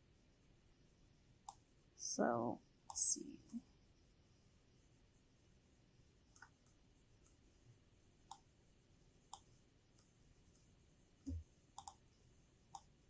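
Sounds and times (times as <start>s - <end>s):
computer mouse clicks: 1.4s - 1.6s, 8.3s - 8.5s, 9.3s - 12.1s, 12.7s - 12.9s
keyboard clicks: 11.3s - 12.0s.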